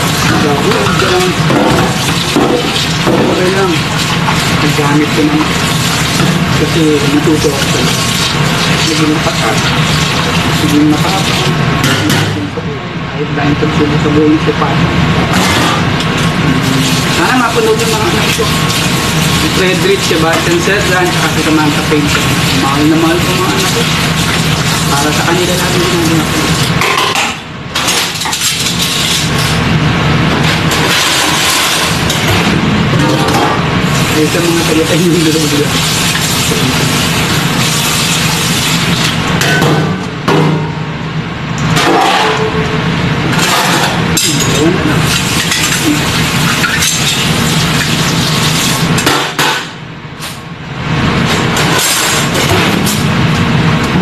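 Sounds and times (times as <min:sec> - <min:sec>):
tap water running into sink: 0:00.0 - 0:11.9, 0:16.1 - 0:26.8, 0:33.9 - 0:39.3
low machine hum: 0:00.0 - 0:54.0
utensils and dishes clinking: 0:15.3 - 0:29.6, 0:41.7 - 0:49.7.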